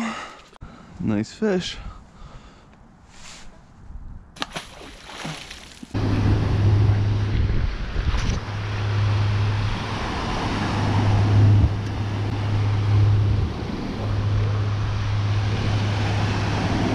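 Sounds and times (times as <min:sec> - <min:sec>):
wind rumble on microphone: 0:03.6 - 0:04.4, 0:05.9 - 0:16.9.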